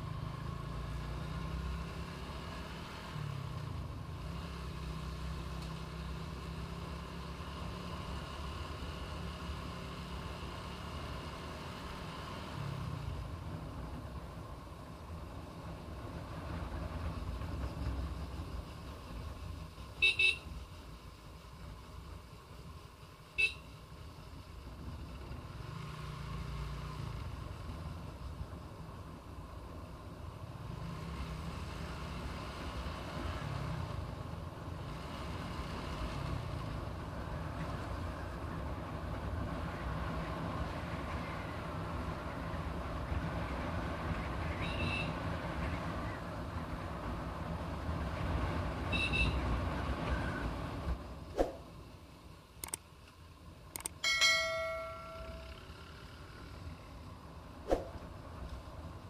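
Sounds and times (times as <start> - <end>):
wind and road noise: 0.0 - 59.0
sharp clicks: 52.6 - 54.0
metallic bell ring: 54.0 - 55.7.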